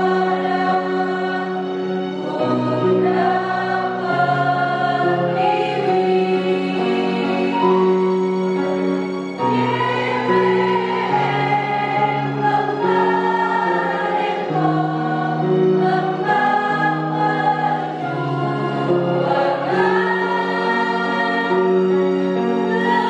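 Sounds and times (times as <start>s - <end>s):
women's choir singing in harmony: 0.0s - 23.0s.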